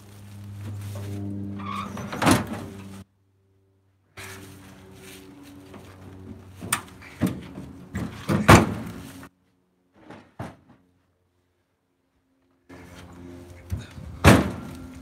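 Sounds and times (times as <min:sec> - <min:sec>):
hollow wooden thuds and knocks: 0:06.6 - 0:09.0, 0:10.0 - 0:10.8.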